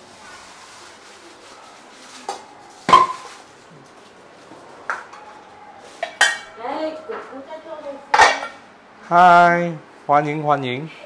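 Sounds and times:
metal kitchenware clanking: 0:02.9 - 0:03.4, 0:06.0 - 0:06.6, 0:08.1 - 0:08.6.

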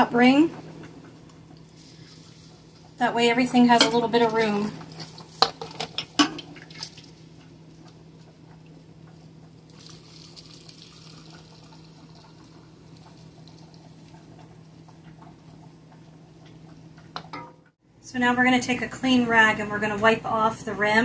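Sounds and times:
faint liquid trickle: 0:08.6 - 0:15.8.

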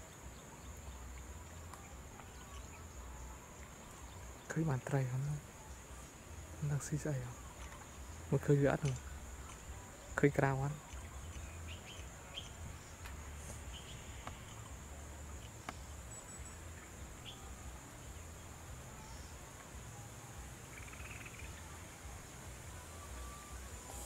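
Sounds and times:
insects droning: 0:00.0 - 0:24.0
faint clicks: 0:08.7 - 0:09.7.

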